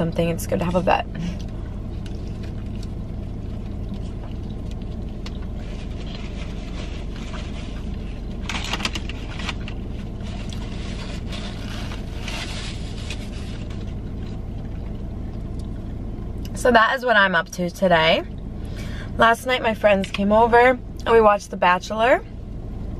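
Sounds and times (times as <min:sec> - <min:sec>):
car cabin hum: 0:00.0 - 0:22.9
chewing: 0:01.3 - 0:06.4
foil wrapper rustling: 0:05.3 - 0:14.0
paper napkin rustling: 0:05.6 - 0:14.0.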